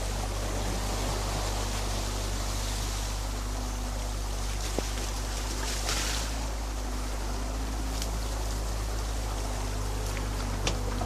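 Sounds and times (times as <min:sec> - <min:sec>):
excavator diesel engine running: 0:00.0 - 0:11.0
muddy water rushing: 0:00.0 - 0:11.0.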